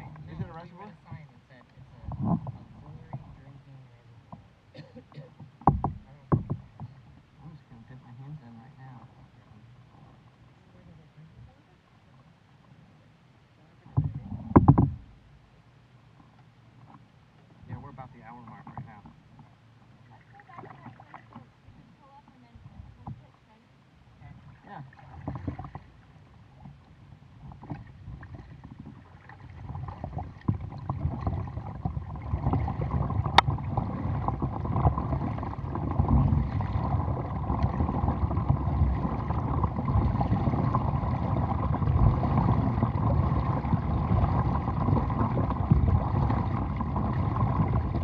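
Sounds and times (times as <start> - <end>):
water splashing along kayak hull: 0.0 - 48.0.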